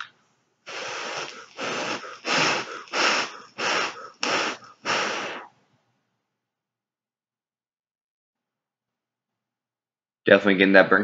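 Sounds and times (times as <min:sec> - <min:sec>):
breathy vape puffs: 0:00.7 - 0:05.6.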